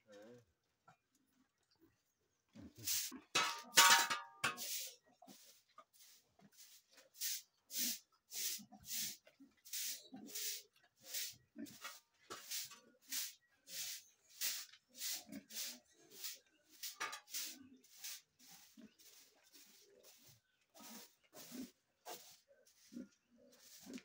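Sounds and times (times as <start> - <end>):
faint low pig grunts: 15.0 - 16.5
pig snuffling nose breaths: 17.6 - 24.0.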